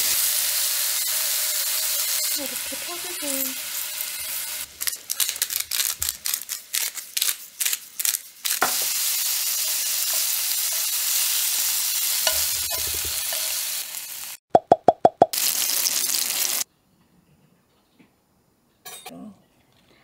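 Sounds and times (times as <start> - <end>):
meat sizzling in a frying pan: 0.0 - 6.6, 7.3 - 14.4, 15.3 - 16.6.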